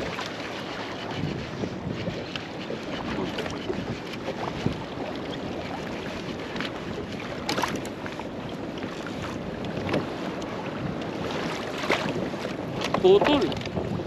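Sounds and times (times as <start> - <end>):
light knocks and scrapes: 0.0 - 4.8
water noise: 0.0 - 14.0
wind: 0.0 - 14.0.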